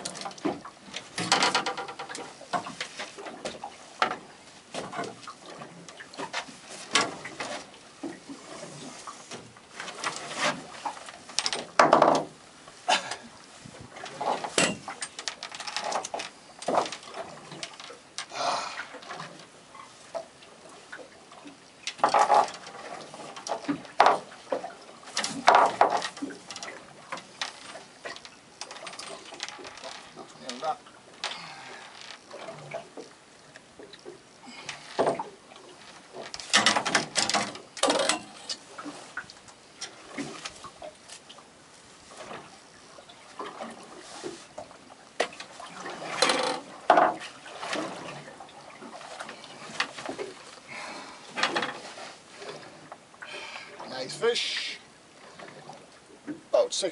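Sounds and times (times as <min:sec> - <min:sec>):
knocks and rustles: 0:00.0 - 0:12.4, 0:13.6 - 0:17.9, 0:21.9 - 0:33.1, 0:34.7 - 0:39.2, 0:43.4 - 0:50.6
short water splashes: 0:12.7 - 0:56.9.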